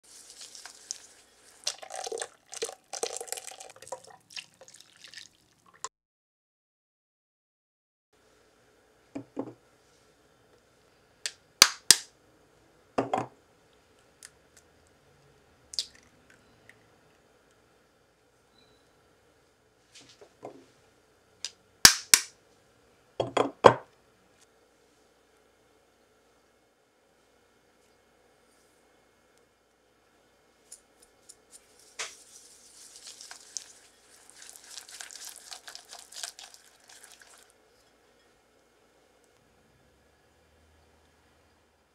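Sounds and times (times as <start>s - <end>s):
eggshells cracking: 32.8s - 37.5s.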